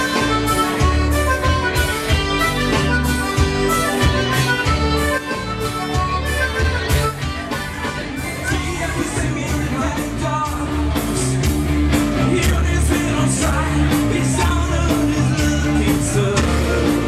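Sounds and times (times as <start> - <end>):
rock band playing: 0.0 - 17.0
person singing: 8.1 - 17.0.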